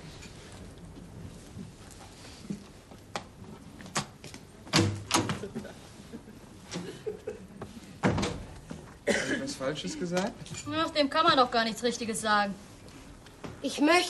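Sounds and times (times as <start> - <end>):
door shutting: 8.0 - 8.5.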